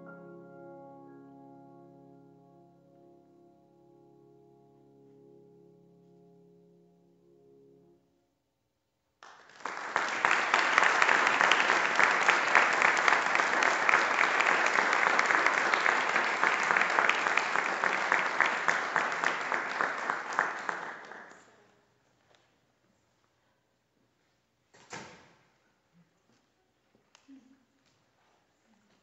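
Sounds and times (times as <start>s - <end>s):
audience applauding: 9.2s - 21.6s.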